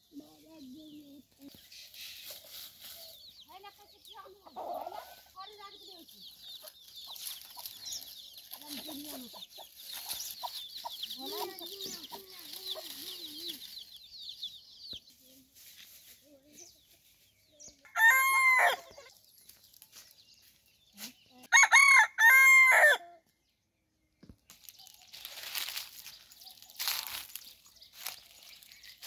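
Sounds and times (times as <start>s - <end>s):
rooster crowing: 17.9s - 18.8s, 21.6s - 23.0s.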